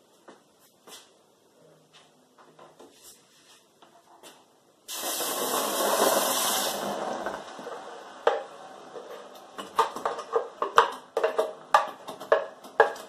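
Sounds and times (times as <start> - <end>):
sauce sizzling in hot oil: 4.9 - 7.5.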